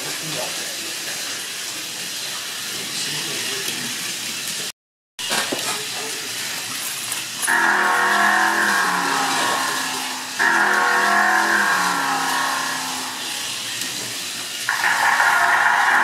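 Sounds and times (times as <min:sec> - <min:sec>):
slot car motor whining: 0:07.5 - 0:16.0.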